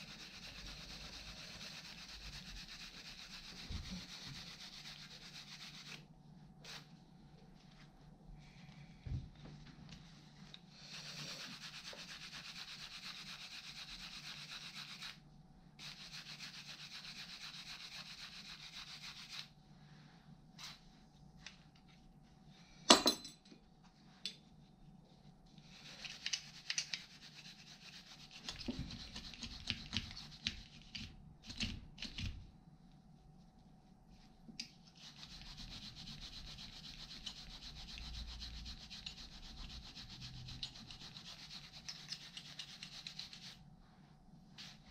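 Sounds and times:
scrubbing metal parts by hand: 0:25.7 - 0:31.1, 0:35.0 - 0:43.6.

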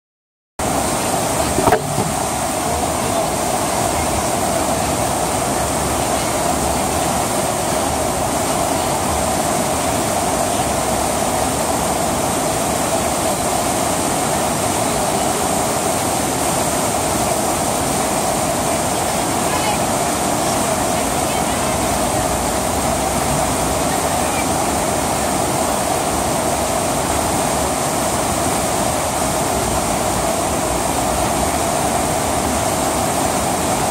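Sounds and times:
rushing water over surface: 0:00.6 - 0:33.9
short bump: 0:01.5 - 0:02.3.

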